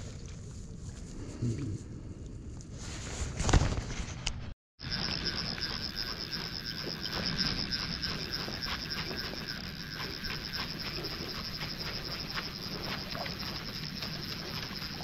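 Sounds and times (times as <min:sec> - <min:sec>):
high steady hum: 0:04.8 - 0:15.0.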